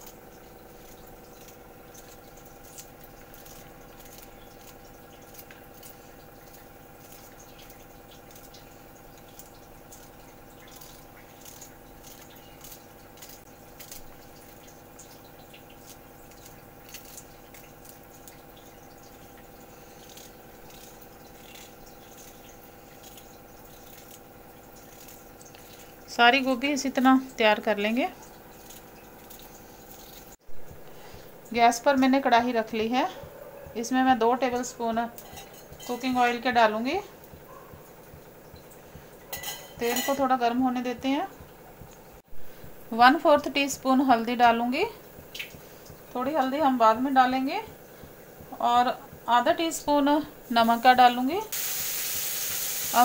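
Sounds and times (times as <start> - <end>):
steady background hum: 0.0 - 53.0
knife cutting cauliflower: 0.8 - 8.6, 9.3 - 14.2, 15.8 - 18.0.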